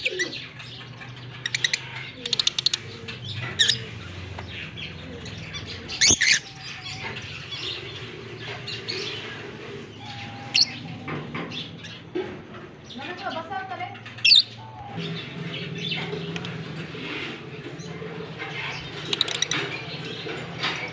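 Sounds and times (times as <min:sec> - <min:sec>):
birds chattering and chirping: 0:00.0 - 0:20.9
sharp high-pitched bird calls: 0:10.0 - 0:11.0.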